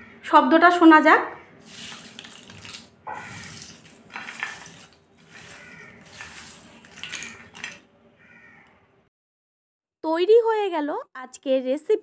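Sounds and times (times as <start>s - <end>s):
crisp snacks crackling and rustling: 1.6s - 7.9s.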